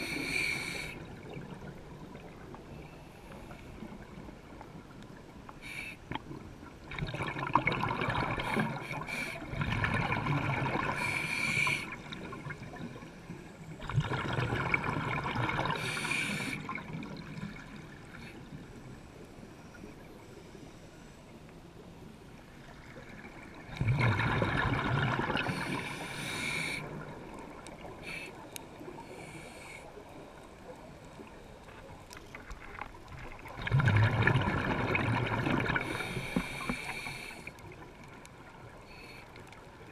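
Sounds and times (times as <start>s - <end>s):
exhaled air bubbling underwater: 0.0s - 2.8s, 6.1s - 20.1s, 22.4s - 38.9s
regulator hiss: 25.6s - 27.0s.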